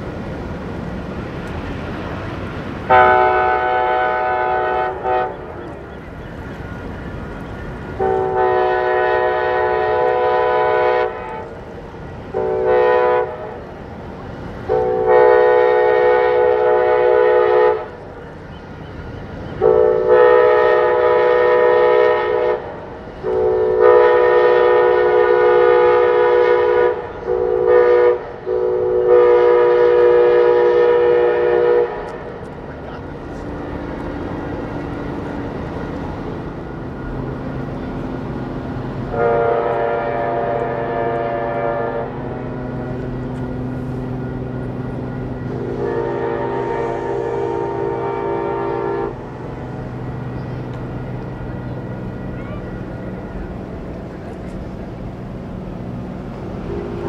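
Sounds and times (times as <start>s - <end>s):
low rumble of train: 0.0s - 57.0s
locomotive air horn: 2.9s - 5.6s, 8.0s - 11.6s, 12.3s - 13.7s, 14.7s - 18.0s, 19.5s - 32.3s, 39.0s - 49.3s.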